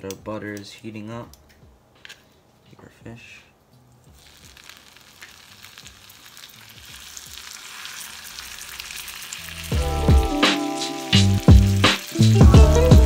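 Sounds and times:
fish sizzling in butter: 0:04.1 - 0:13.0
music with bass beat: 0:09.7 - 0:13.0.

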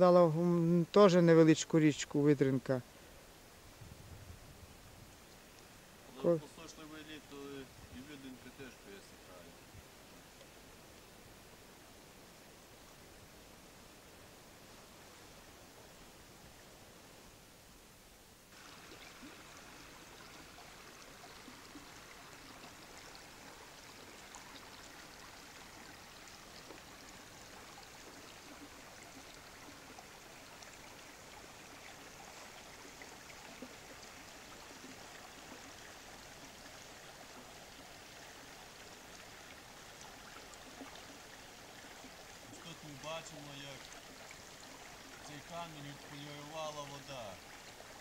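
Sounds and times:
river water flowing over stones: 0:18.4 - 0:48.0.

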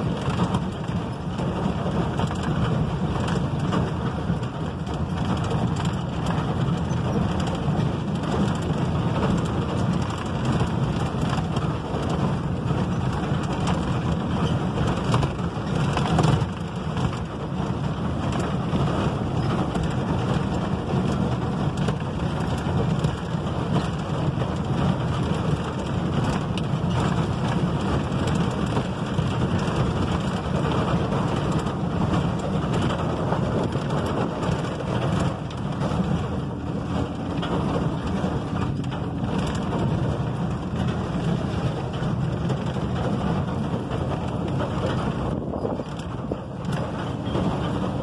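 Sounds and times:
tyres rolling over gravel: 0:00.0 - 0:48.0
vehicle engine running: 0:00.0 - 0:48.0.

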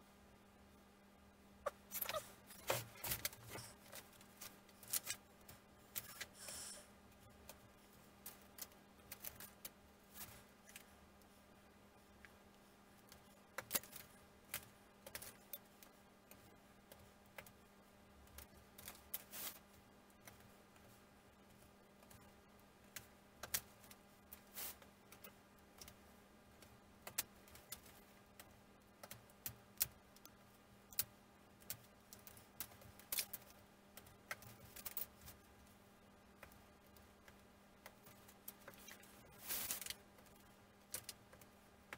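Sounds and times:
faint steady hum: 0:00.0 - 0:41.9.

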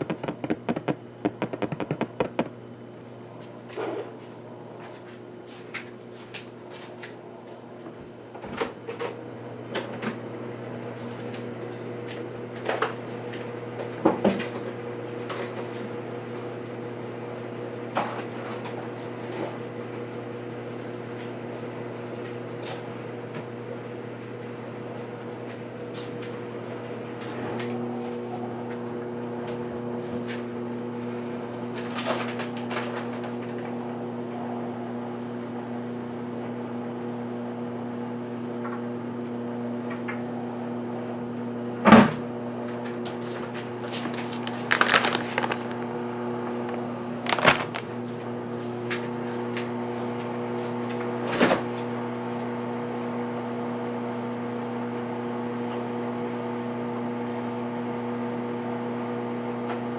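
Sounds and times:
kitchen items knocking and clattering: 0:00.0 - 0:02.6, 0:43.9 - 0:45.8, 0:46.5 - 0:47.9
kitchen appliance humming: 0:25.7 - 0:59.9.

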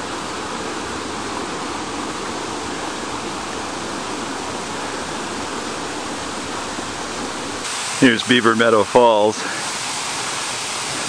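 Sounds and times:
waterfall roar: 0:00.0 - 0:11.0.

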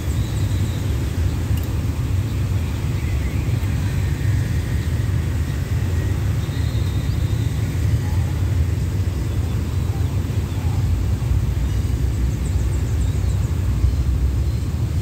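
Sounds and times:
diesel locomotive rumbling: 0:00.0 - 0:15.0.

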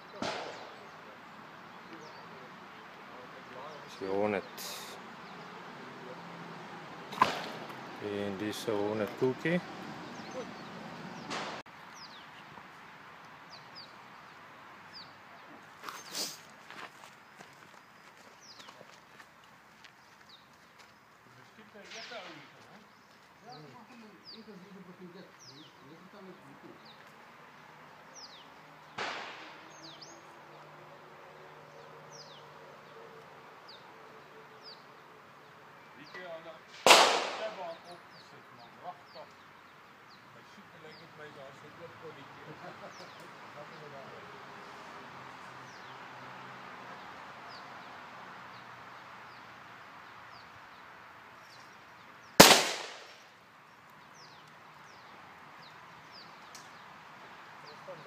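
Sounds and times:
sharp crack: 0:00.0 - 0:01.1, 0:07.1 - 0:09.6, 0:11.2 - 0:11.7, 0:29.0 - 0:30.0, 0:36.7 - 0:37.8, 0:52.4 - 0:53.4
birds chirping: 0:00.0 - 0:58.0
gunshot: 0:00.2 - 0:01.0, 0:07.1 - 0:07.7, 0:11.3 - 0:11.6, 0:29.0 - 0:29.6, 0:36.8 - 0:37.7, 0:52.4 - 0:53.2.

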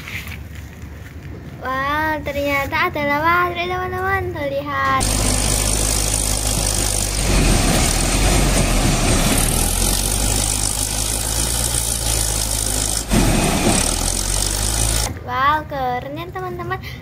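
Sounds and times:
wheel loader diesel engine: 0:04.8 - 0:15.2.

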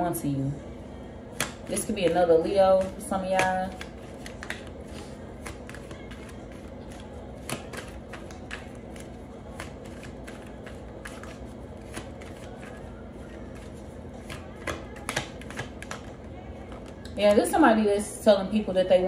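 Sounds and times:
cards being shuffled: 0:01.4 - 0:02.2, 0:02.8 - 0:17.0.

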